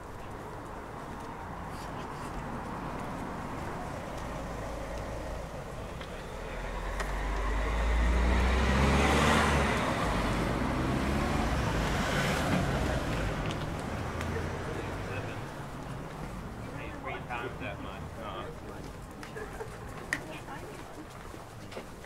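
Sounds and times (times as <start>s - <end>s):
vehicle engine rumble: 0.0s - 22.0s.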